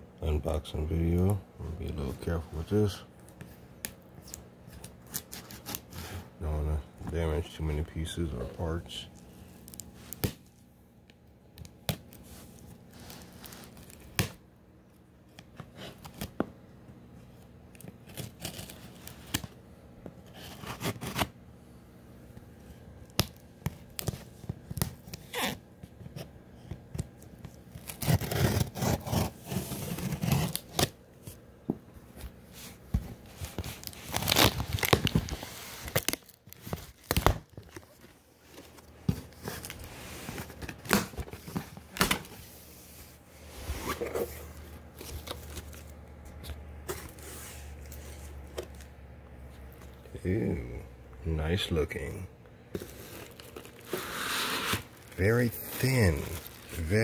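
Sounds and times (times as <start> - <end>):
packing tape tearing: 17.8 - 19.6, 20.3 - 21.4, 23.1 - 25.6, 26.9 - 31.0, 33.4 - 38.0, 52.8 - 57.0
cardboard scraping and rustling: 27.8 - 30.9, 43.4 - 45.8, 52.7 - 57.0.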